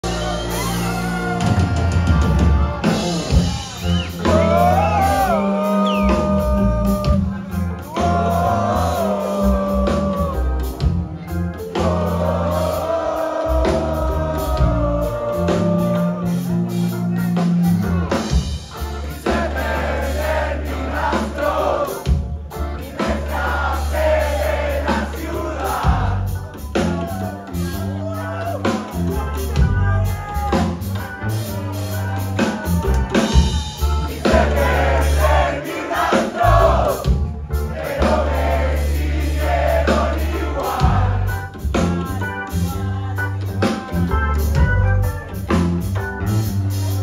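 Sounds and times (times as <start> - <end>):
man singing: 0.0 - 10.8, 11.6 - 17.8
rock band playing: 0.0 - 47.0.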